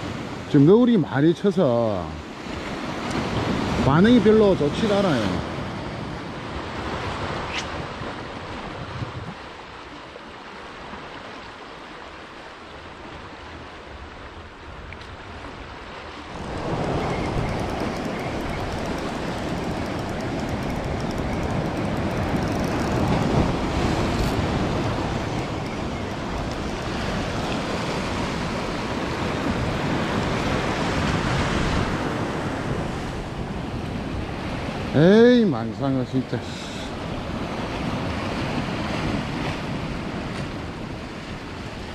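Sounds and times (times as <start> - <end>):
wind on microphone: 4.9 - 9.7, 14.7 - 35.0.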